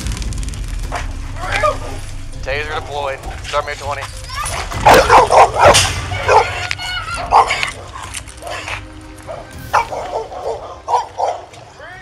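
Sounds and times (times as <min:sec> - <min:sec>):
dog barking loudly: 0:04.9 - 0:06.6, 0:07.2 - 0:07.7, 0:09.7 - 0:11.5.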